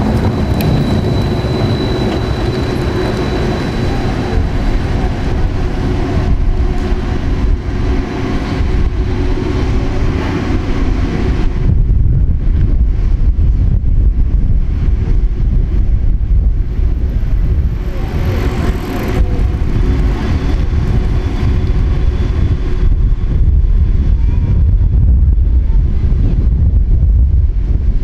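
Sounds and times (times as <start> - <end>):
street traffic: 0.0 - 11.8, 15.5 - 23.8
wind buffeting microphone: 0.0 - 28.0.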